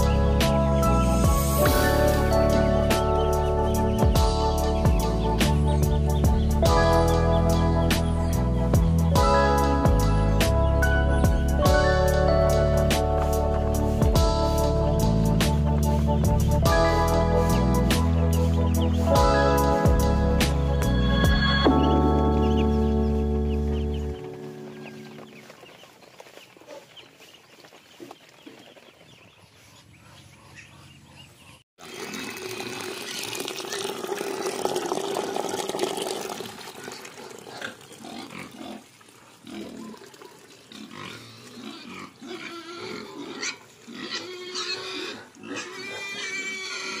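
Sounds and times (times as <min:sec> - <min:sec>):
pigs squealing and grunting: 0:36.8 - 0:47.0.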